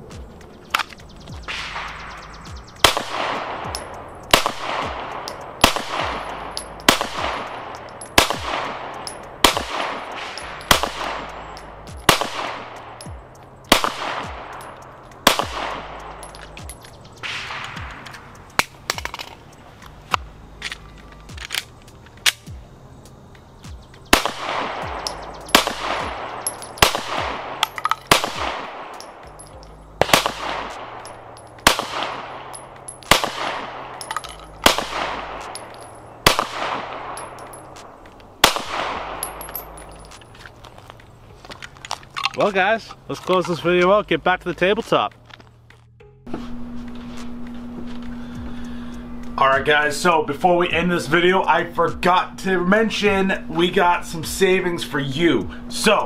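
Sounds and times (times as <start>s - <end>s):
pistol shots with echo: 1.4s - 19.2s, 24.1s - 40.2s.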